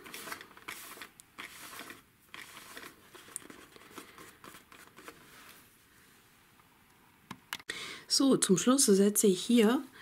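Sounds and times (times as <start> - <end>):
paper rustling and scuffing: 0.0 - 5.7.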